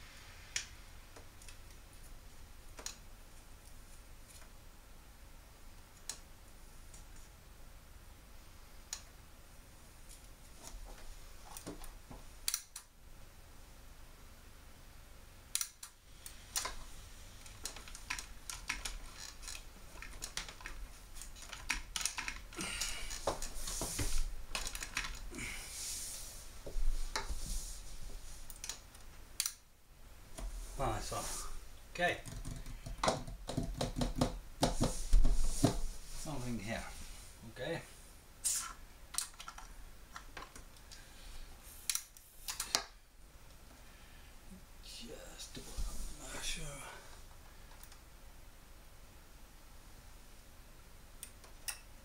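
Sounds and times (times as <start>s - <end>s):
small clicks of connectors: 12.4s - 12.9s, 15.5s - 16.8s, 28.5s - 29.6s, 41.9s - 42.9s
hands rustling on circuit boards: 15.8s - 29.3s.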